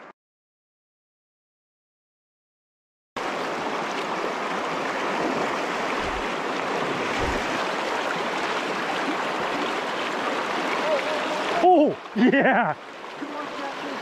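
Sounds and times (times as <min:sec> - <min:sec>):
stream rushing: 0:03.2 - 0:14.0
soft low bumps: 0:06.0 - 0:06.4, 0:07.0 - 0:07.6.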